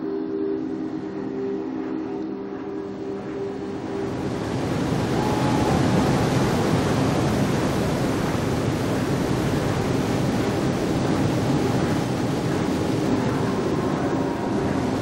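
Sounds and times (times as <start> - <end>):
rushing white water: 3.3 - 15.0.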